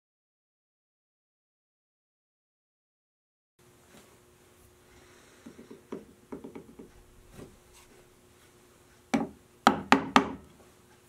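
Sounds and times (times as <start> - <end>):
mallet striking chisel: 9.2 - 10.4.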